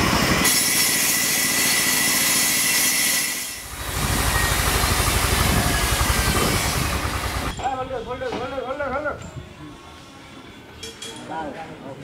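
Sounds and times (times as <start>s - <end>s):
band saw cutting a log: 0.4s - 7.5s
low rhythmic engine thud: 3.7s - 7.6s.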